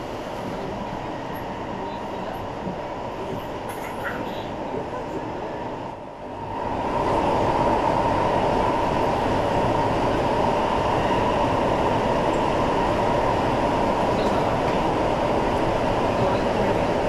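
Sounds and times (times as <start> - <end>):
metro train wheel rumble: 0.0 - 17.0.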